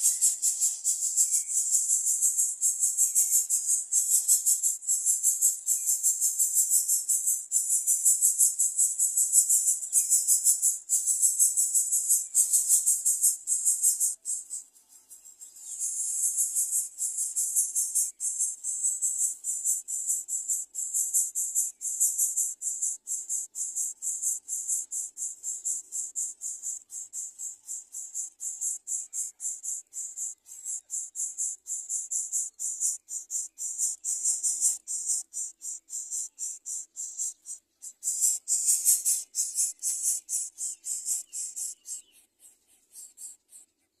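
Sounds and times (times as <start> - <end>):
insect pulsing buzz: 15.9 - 41.9.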